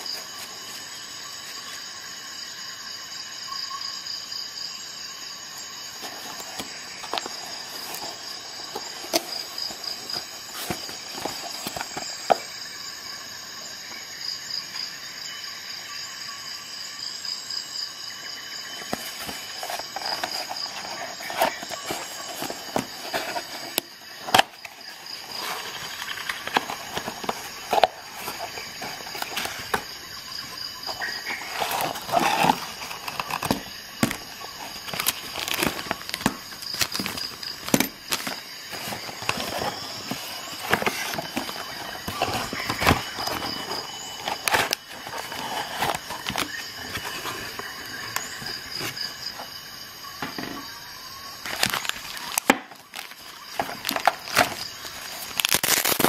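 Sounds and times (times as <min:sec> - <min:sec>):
packaging rustling and scraping: 0:00.0 - 0:01.6, 0:05.9 - 0:12.6, 0:18.5 - 0:49.6, 0:51.4 - 0:56.0.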